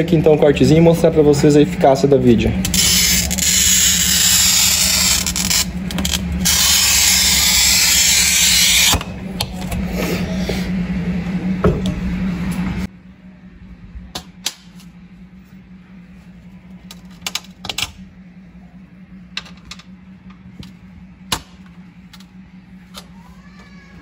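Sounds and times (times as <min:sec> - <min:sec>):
steady low hum: 0:00.0 - 0:24.0
glass cutter scoring glass: 0:02.7 - 0:09.1.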